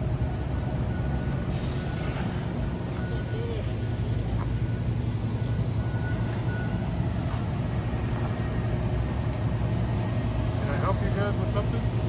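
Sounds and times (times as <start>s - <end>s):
low mechanical drone: 0.0s - 12.0s
faint high beep: 2.9s - 7.0s.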